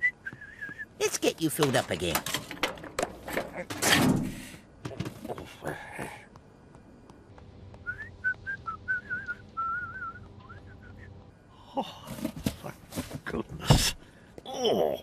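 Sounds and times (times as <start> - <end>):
person whistling a tune: 0.0 - 0.9, 7.8 - 11.1.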